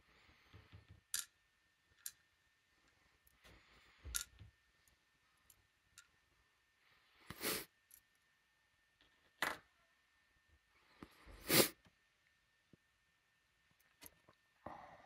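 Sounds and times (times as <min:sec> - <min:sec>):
small metal parts clicking: 0:01.1 - 0:02.2, 0:04.1 - 0:04.4.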